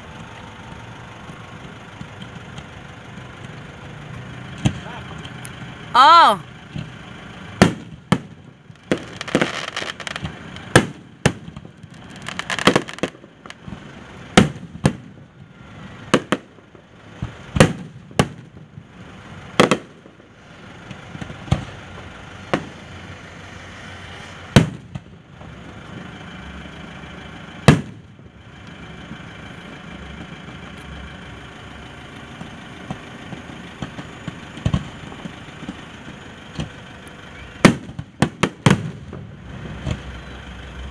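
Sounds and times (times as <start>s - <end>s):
fireworks crackling: 0.0s - 3.9s, 6.9s - 40.9s
fireworks bangs: 7.6s - 26.0s, 27.6s - 28.1s, 32.4s - 36.8s, 37.4s - 40.4s.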